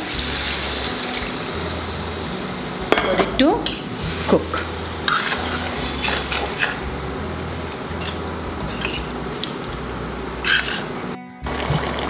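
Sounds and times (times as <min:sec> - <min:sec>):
cooking pot hissing: 0:00.0 - 0:12.0
spoon clinking against pot: 0:08.0 - 0:09.6.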